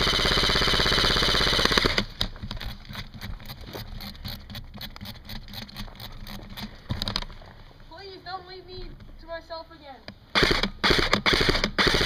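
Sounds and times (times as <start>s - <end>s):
airsoft gun firing full auto: 0.0s - 2.3s, 10.3s - 12.0s
clicks and rustling of movement: 2.1s - 7.9s.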